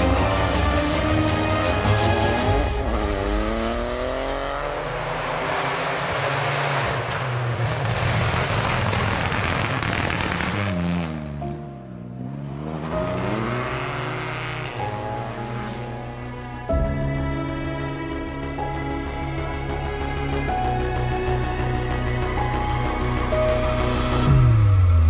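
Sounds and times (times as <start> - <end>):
background music: 0.0 - 7.0, 9.2 - 25.0
car passing rush: 0.0 - 11.4
rally car engine revving: 0.0 - 11.4, 12.2 - 15.9.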